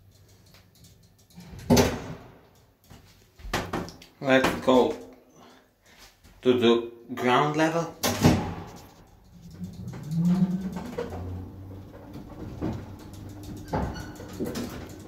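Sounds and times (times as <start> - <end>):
elevator drive droning: 9.1 - 15.0.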